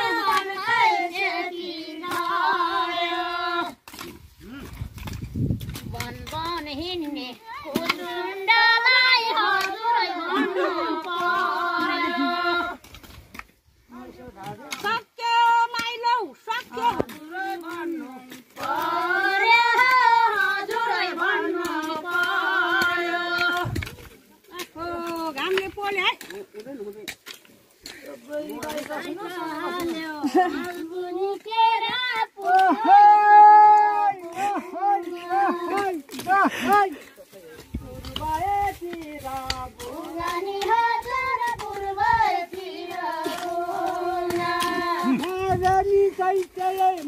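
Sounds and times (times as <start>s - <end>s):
woman singing unaccompanied: 0.0s - 3.8s, 6.0s - 12.8s, 14.8s - 23.8s, 28.3s - 36.0s, 37.8s - 47.0s.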